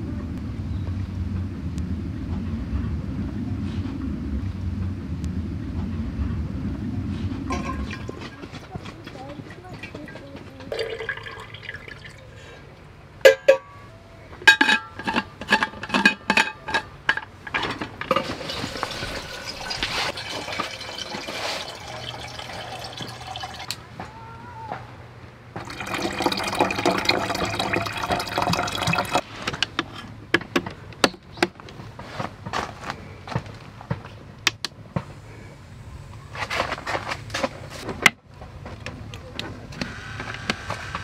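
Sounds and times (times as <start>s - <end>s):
water pouring into a flask: 7.5s - 8.5s, 10.7s - 12.4s, 18.3s - 23.8s, 25.6s - 29.2s.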